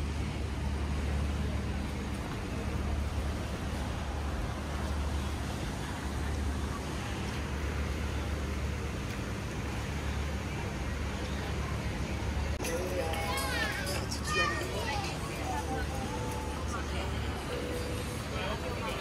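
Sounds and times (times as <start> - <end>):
urban traffic hum: 0.0 - 19.0.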